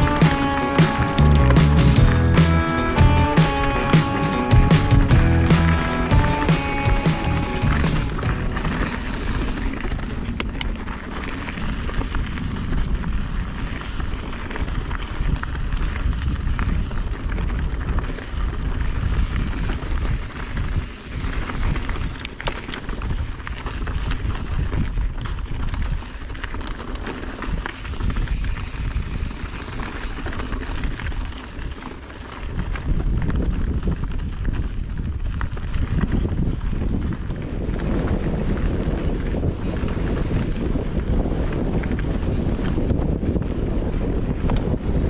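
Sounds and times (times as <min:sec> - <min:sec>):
tyres crunching on gravel: 0:00.0 - 0:44.4
bike clicking and rattling: 0:00.0 - 0:45.0
wind buffeting microphone: 0:00.0 - 0:45.0.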